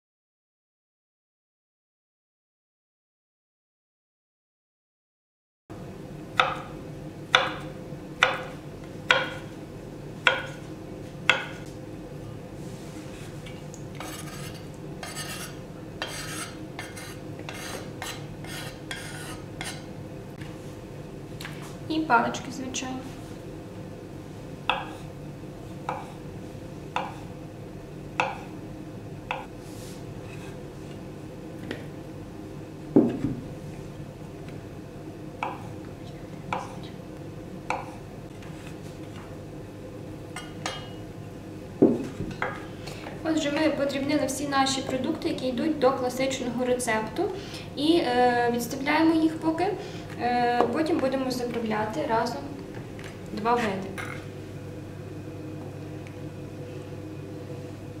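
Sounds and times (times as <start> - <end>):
knife chopping on wooden board: 6.4 - 6.7, 7.3 - 9.4, 10.2 - 10.6, 11.3 - 11.6, 24.7 - 25.0, 25.8 - 26.2, 27.0 - 27.3, 28.2 - 28.5, 37.7 - 38.0
knife knocking on cutting board: 33.0 - 33.4, 41.8 - 42.6.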